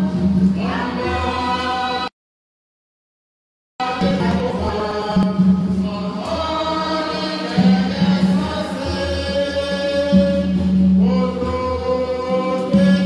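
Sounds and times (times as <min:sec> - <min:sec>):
choir singing a hymn: 0:00.0 - 0:02.1, 0:03.8 - 0:13.0
low accompaniment: 0:03.8 - 0:13.0.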